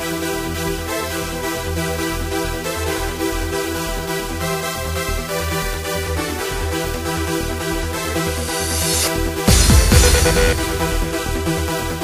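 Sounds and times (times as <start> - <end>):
electronic dance music: 6.8 - 12.0
pulsing bass beat: 7.4 - 12.0.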